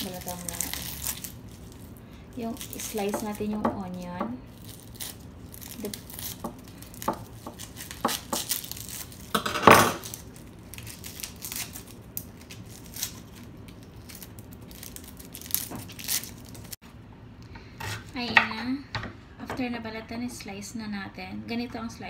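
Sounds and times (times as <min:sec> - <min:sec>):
dry onion skin crinkling: 0:00.0 - 0:16.8.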